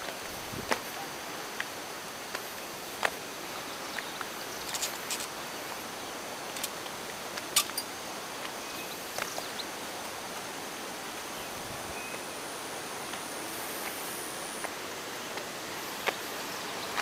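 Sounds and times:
footsteps on rocky trail: 0.0s - 3.2s, 14.6s - 17.0s
steady outdoor hiss: 0.0s - 17.0s.

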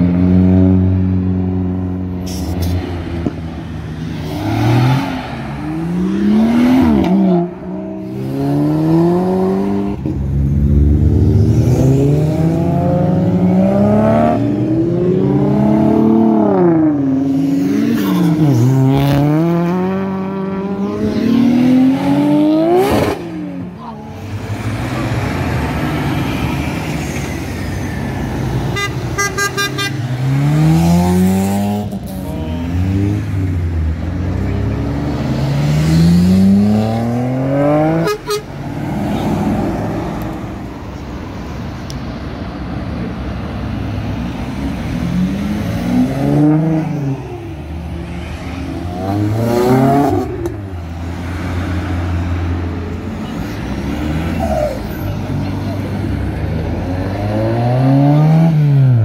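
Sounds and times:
car engines revving: 0.0s - 59.0s
car horn pulses: 28.7s - 30.1s, 37.9s - 38.6s.

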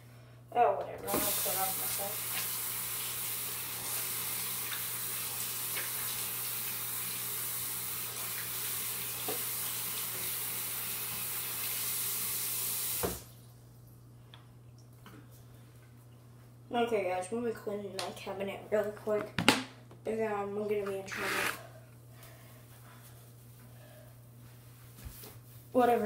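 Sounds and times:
kitchen tap running: 1.1s - 13.3s.

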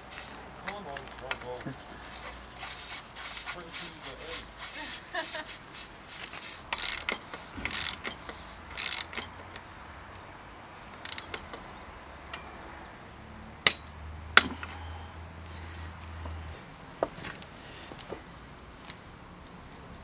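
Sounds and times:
metal threads scraping: 1.4s - 9.8s
sharp clicks: 10.9s - 11.6s.

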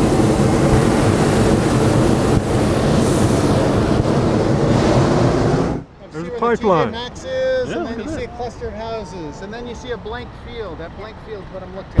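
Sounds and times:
propane burner blasting: 0.0s - 6.8s.

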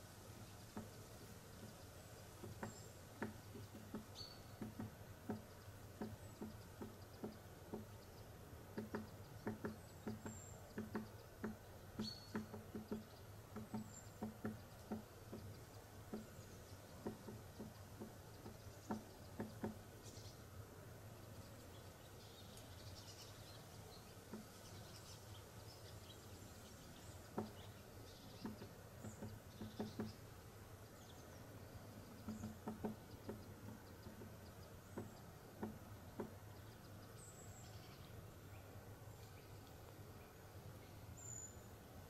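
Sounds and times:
soft ticks and taps: 0.6s - 20.2s, 21.8s - 22.7s, 24.2s - 25.1s, 26.9s - 31.0s, 32.0s - 37.2s, 39.2s - 40.0s.

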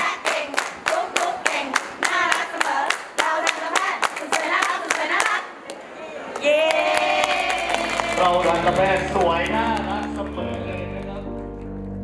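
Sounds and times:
group clapping in rhythm: 0.0s - 5.5s, 6.3s - 11.3s
people singing: 0.0s - 5.6s.

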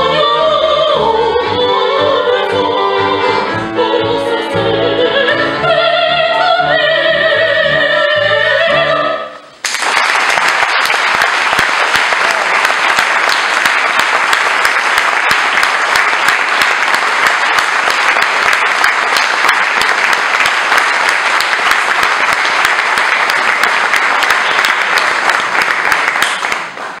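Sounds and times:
audience applauding: 9.6s - 27.0s.

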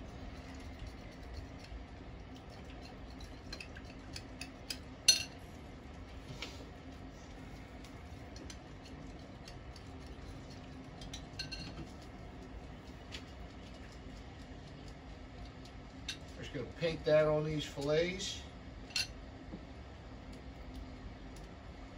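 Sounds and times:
utensil clinking in glass bowl: 3.0s - 5.4s, 11.0s - 11.9s.

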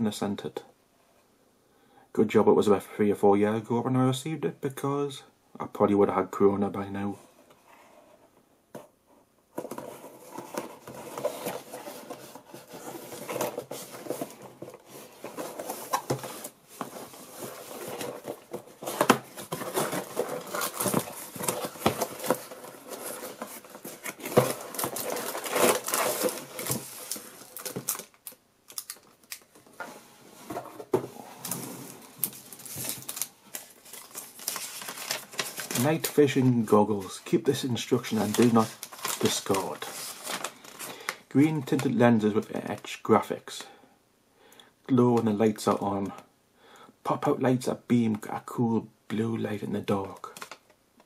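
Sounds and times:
cardboard packaging rustling: 9.5s - 41.8s.

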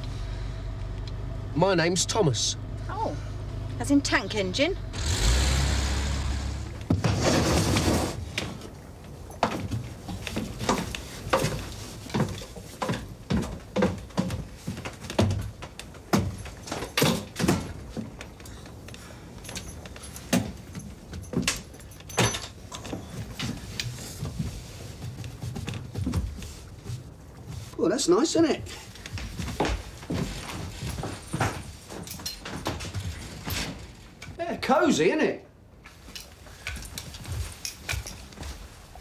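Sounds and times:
crutches clattering on wooden steps: 6.8s - 34.4s, 35.8s - 39.0s.

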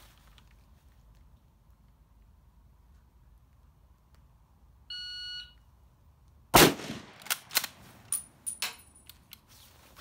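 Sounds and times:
rifle shot: 6.5s - 7.8s.

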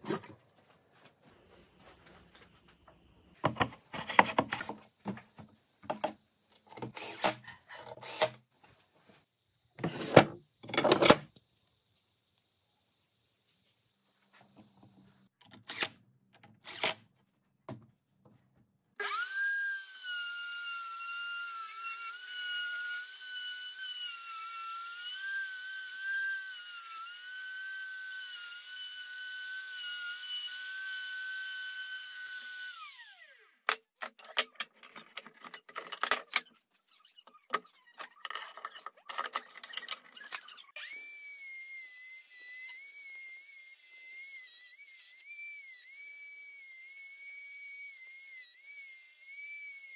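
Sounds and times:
electric router whining: 19.0s - 33.5s, 40.8s - 49.9s.

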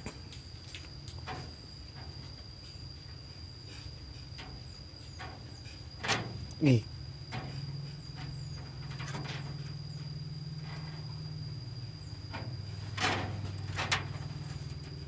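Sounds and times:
faint high whine: 0.0s - 15.0s
steady low hum: 0.0s - 15.0s.

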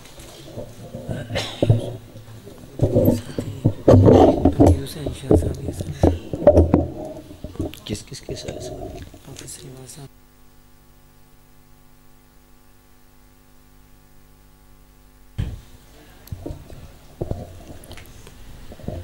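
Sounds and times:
low thumps: 0.0s - 9.2s
electrical mains hum: 0.0s - 19.0s.

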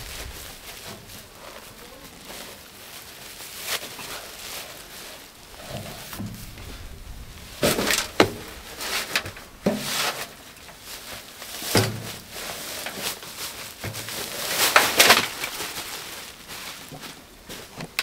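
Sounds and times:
dull thuds: 0.0s - 1.8s, 5.4s - 10.6s
soil pouring into wheelbarrow: 0.0s - 17.0s
sack fabric rustling: 0.0s - 17.4s.

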